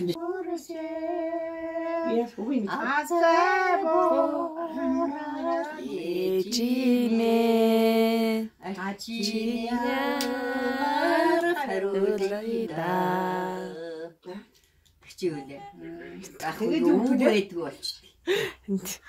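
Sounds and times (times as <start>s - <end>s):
woman singing unaccompanied: 0.0s - 14.5s.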